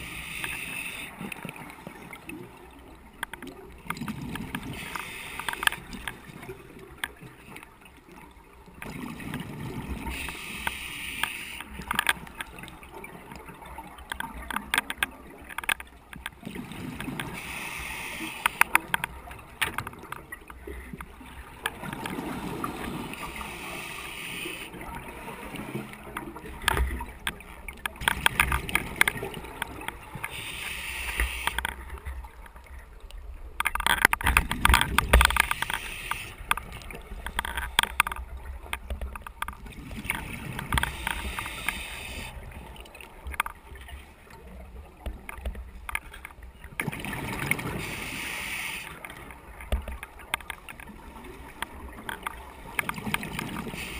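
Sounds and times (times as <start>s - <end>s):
regulator inhalation hiss: 0.0s - 1.2s, 10.1s - 11.7s, 17.4s - 18.6s, 23.3s - 24.7s, 30.3s - 31.6s, 35.5s - 36.4s, 40.9s - 42.4s, 47.8s - 49.0s.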